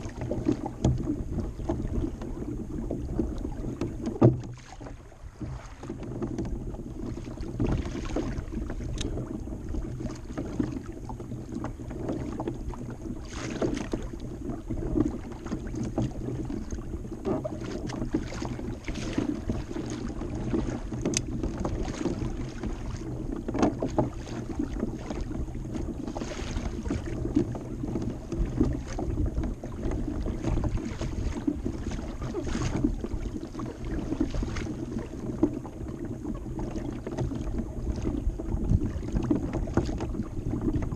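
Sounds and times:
water slapping against hull: 0:00.0 - 0:40.9
small splashes: 0:03.3 - 0:06.4, 0:07.1 - 0:11.6, 0:13.2 - 0:14.2, 0:17.4 - 0:29.1, 0:29.7 - 0:35.5.

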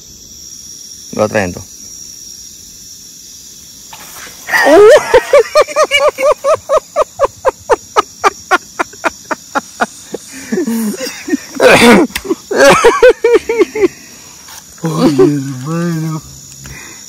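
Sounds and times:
night insects trilling: 0:00.0 - 0:17.0
man laughing: 0:04.5 - 0:14.0, 0:14.8 - 0:15.7.

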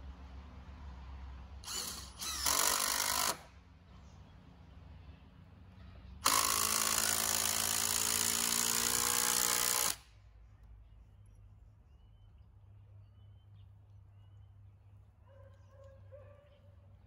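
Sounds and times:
cordless drill running: 0:01.6 - 0:03.5, 0:06.2 - 0:10.0.

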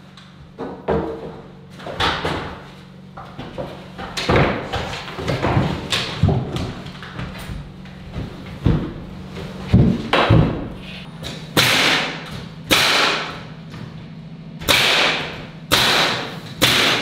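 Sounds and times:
nail gun shots: 0:11.6 - 0:13.4, 0:14.6 - 0:17.0.

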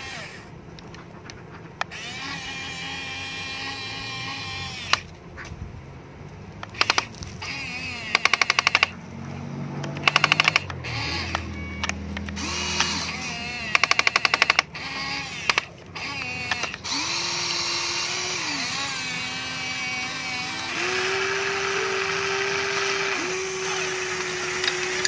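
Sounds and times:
toy electric motors whining: 0:00.0 - 0:05.2, 0:06.6 - 0:09.0, 0:09.8 - 0:25.0
rapid clicking bursts: 0:06.6 - 0:09.0, 0:09.8 - 0:19.4.

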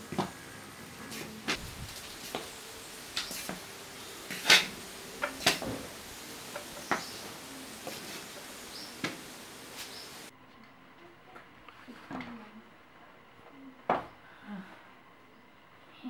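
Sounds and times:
steady hiss: 0:00.0 - 0:10.9.

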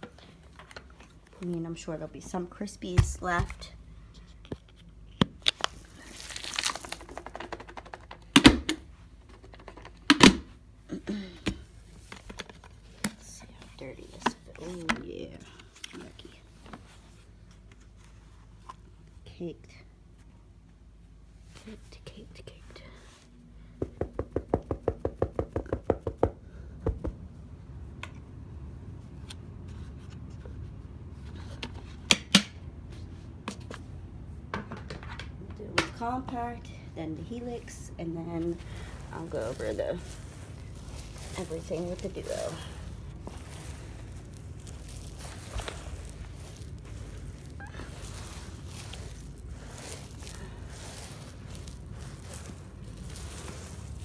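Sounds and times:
debris clicking on carpet: 0:04.2 - 0:08.4, 0:38.6 - 0:54.0.

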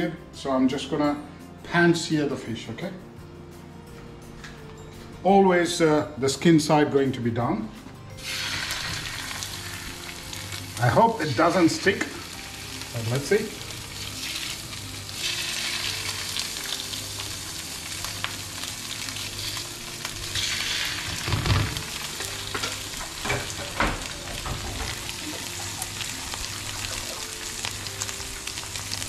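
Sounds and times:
fish sizzling in hot oil: 0:08.2 - 0:29.0.

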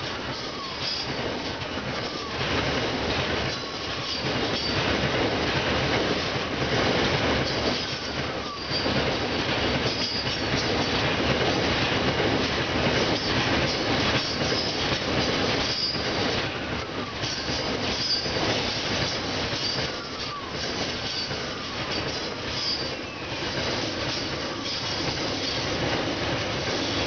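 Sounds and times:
train wheels rumbling on rail: 0:00.0 - 0:27.0
high wheel squeals: 0:00.2 - 0:02.5, 0:03.5 - 0:04.8, 0:07.8 - 0:09.0, 0:15.6 - 0:16.2, 0:17.2 - 0:25.8.

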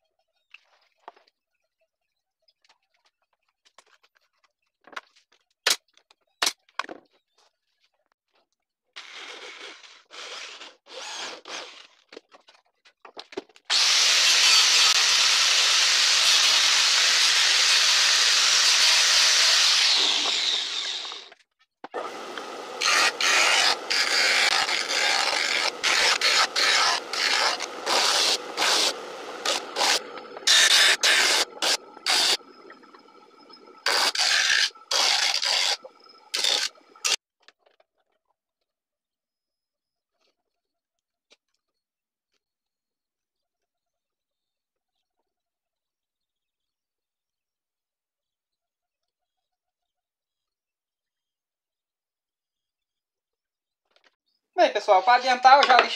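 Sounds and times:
electric drill driving screws: 0:10.1 - 0:11.9, 0:13.7 - 0:21.4, 0:22.0 - 0:32.5, 0:33.8 - 0:37.2
disc sander rasping wood: 0:13.7 - 0:21.3, 0:22.0 - 0:37.2
loud power tool noise: 0:13.7 - 0:21.3, 0:22.0 - 0:32.5, 0:33.8 - 0:37.2.

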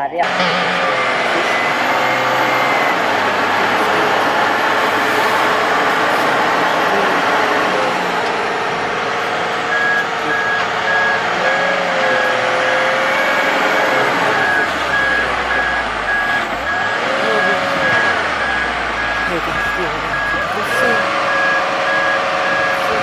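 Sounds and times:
electronic warning alarm beeping: 0:00.0 - 0:23.0
track noise: 0:00.0 - 0:23.0
tractor engine running hard: 0:00.0 - 0:23.0.

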